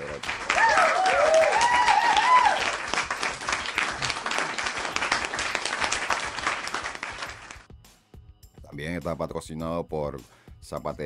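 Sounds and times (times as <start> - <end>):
crowd applause: 0.0 - 7.6
whoops and cheers: 0.5 - 2.9.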